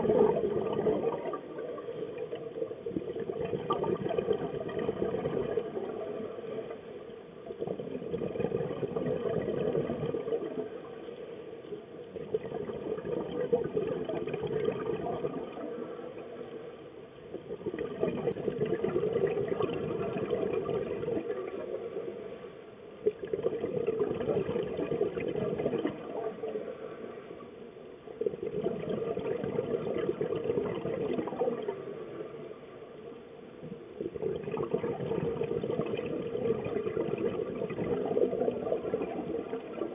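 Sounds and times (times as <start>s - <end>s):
exhaled bubbles underwater: 0.0s - 39.9s.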